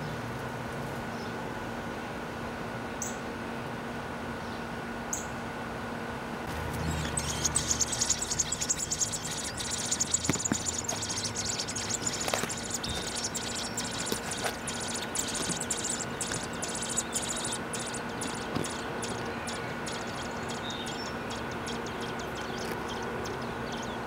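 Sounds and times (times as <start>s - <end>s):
nestling birds begging cheeps: 6.6s - 24.0s.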